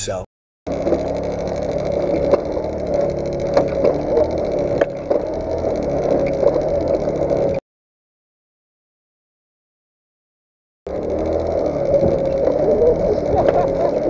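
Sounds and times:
moped engine idling: 0.7 - 7.6, 10.9 - 14.0.

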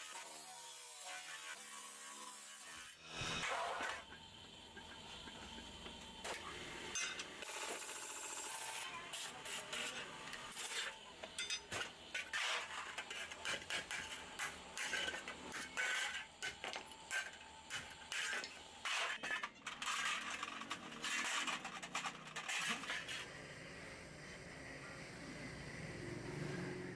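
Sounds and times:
metal griddle discs scraping: 10.8 - 23.3.

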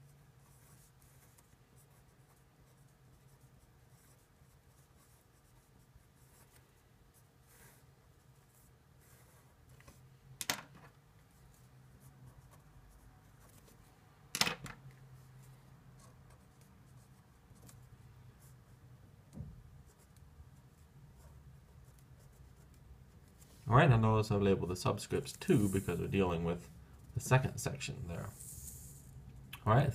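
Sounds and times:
marker pens scratching on paper: 0.1 - 10.0, 25.2 - 26.2.

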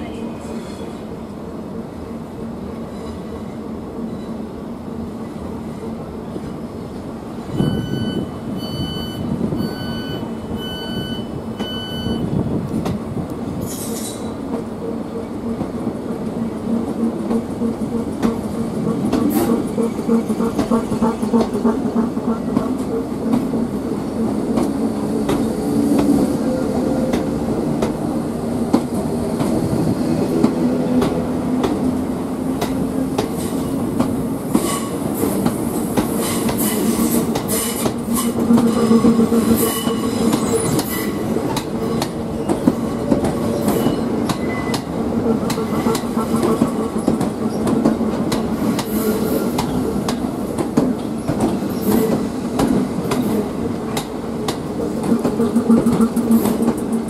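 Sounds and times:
train drone rising: 1.0 - 57.0
electric train humming: 3.6 - 57.0
train wheels clicking over rail joints: 12.7 - 26.3, 27.0 - 57.0.

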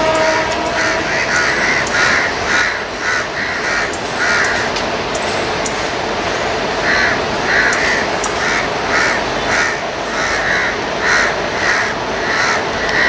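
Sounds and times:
electric train rumbling: 0.0 - 13.0
crows cawing: 0.8 - 4.7, 6.8 - 13.0.

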